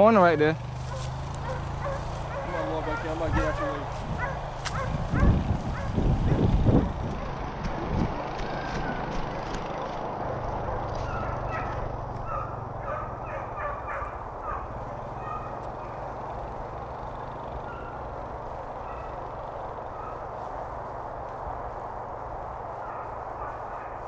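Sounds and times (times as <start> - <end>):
footsteps crunching dry leaves: 0.0 - 12.6, 18.3 - 24.0
distant short high calls: 17.5 - 20.3.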